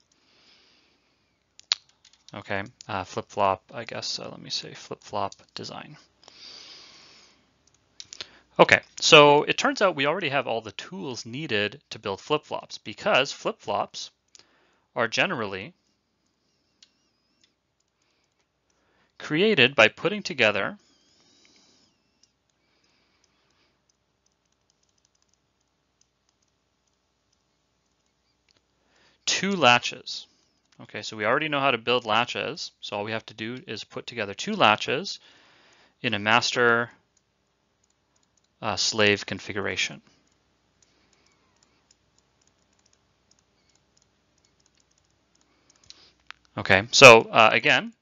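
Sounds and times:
stylus tapping tablet screen: 0:20.8 - 0:28.6, 0:40.1 - 0:46.5.

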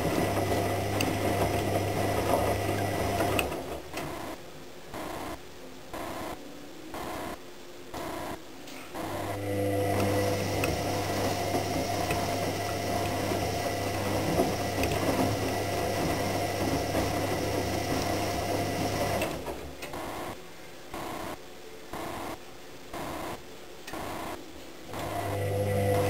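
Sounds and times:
washing machine drum spinning: 0:00.0 - 0:04.2, 0:09.1 - 0:19.9, 0:25.0 - 0:26.0.

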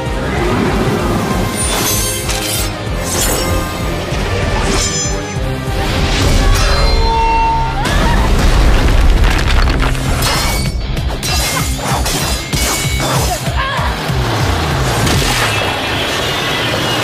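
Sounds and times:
dramatic orchestral music: 0:00.0 - 0:17.0
stone smashing: 0:08.2 - 0:10.8
sword blades clashing: 0:10.2 - 0:13.6.

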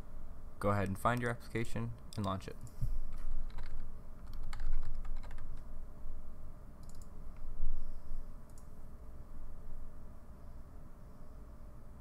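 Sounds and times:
computer mouse clicking: 0:03.1 - 0:05.7, 0:06.8 - 0:07.5, 0:08.5 - 0:08.8.

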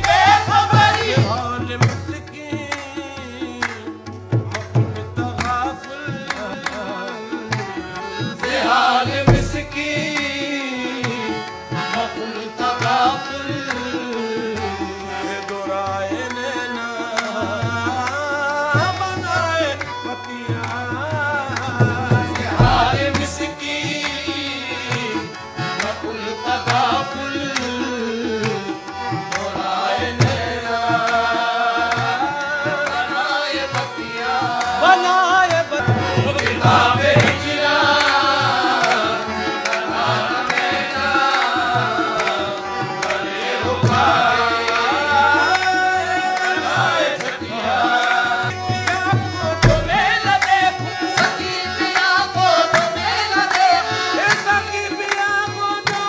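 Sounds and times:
harmoniums: 0:00.0 - 0:56.0
men singing: 0:00.0 - 0:56.0
hand drum beat: 0:21.7 - 0:23.2, 0:49.4 - 0:50.6.

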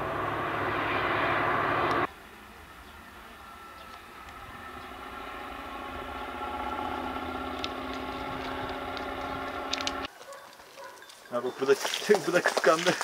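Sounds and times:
diesel locomotive engine humming: 0:00.0 - 0:10.1.

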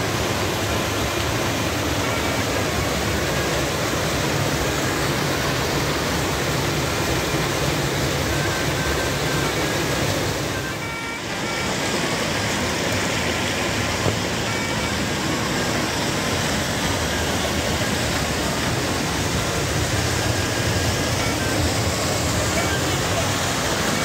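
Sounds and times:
waterfall rushing: 0:00.0 - 0:24.0.

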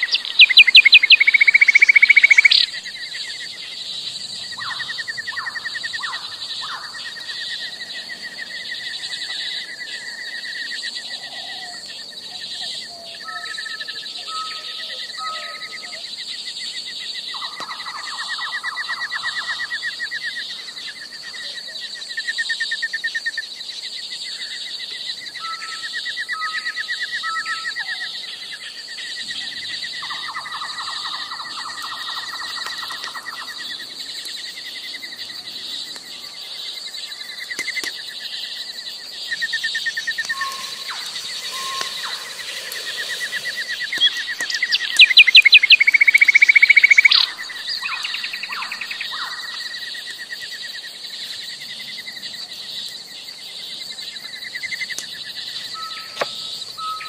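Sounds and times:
birds chirping and trilling: 0:00.0 - 0:08.0, 0:39.6 - 0:49.8.

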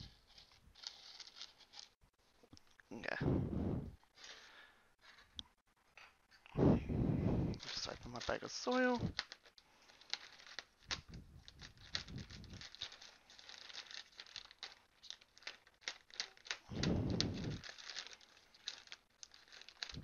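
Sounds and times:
plastic bag crinkling: 0:00.0 - 0:02.0, 0:07.6 - 0:20.0.

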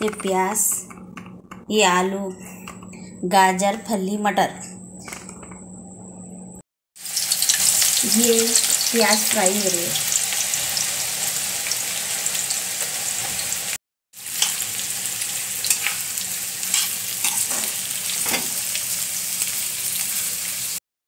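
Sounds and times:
onions sizzling in hot oil: 0:07.0 - 0:20.8.

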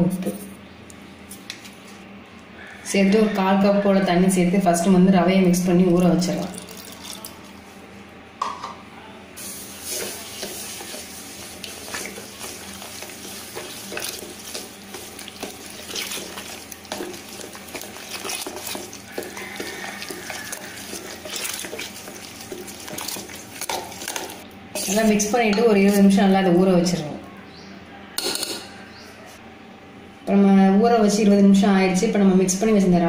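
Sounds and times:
spoon squelching and scraping bowl: 0:09.6 - 0:26.2.

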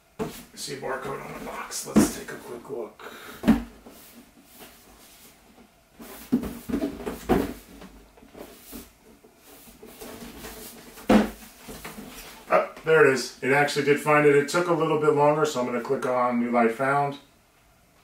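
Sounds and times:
cardboard knocks and scrapes: 0:00.2 - 0:02.4, 0:06.0 - 0:08.9, 0:09.5 - 0:12.4.

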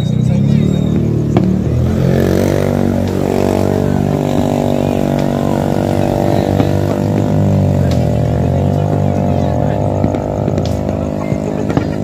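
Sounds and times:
motorcycle engines revving: 0:00.0 - 0:12.0
distant fireworks popping: 0:00.8 - 0:12.0.

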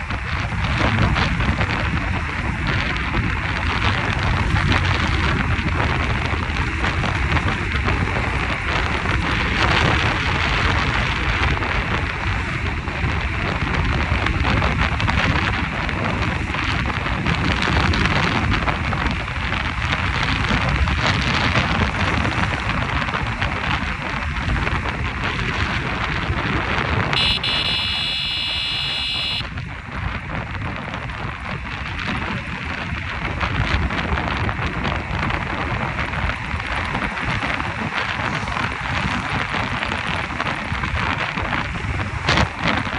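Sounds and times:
loud steady rushing noise: 0:00.0 - 0:42.9
high buzzing tone: 0:27.2 - 0:29.5.

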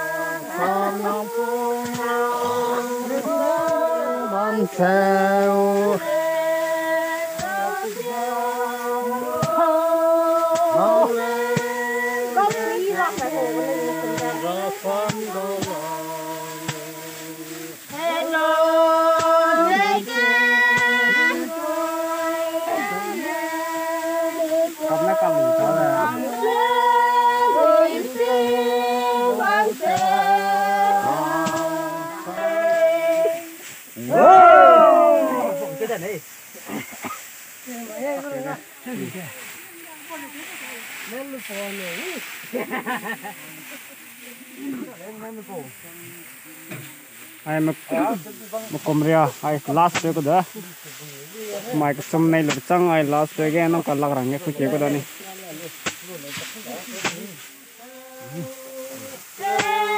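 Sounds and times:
group of voices chanting: 0:00.0 - 0:36.1, 0:56.9 - 0:59.9.

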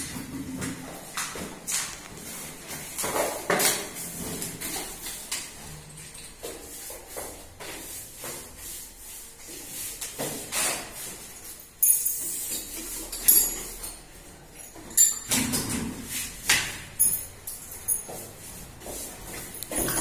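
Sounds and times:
metal tools clinking: 0:11.6 - 0:15.4, 0:17.0 - 0:18.2, 0:19.6 - 0:20.0.

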